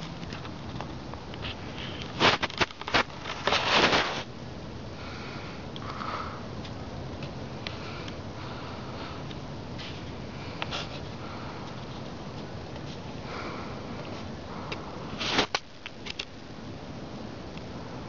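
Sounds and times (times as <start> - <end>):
person sniffing: 7.8 - 11.8.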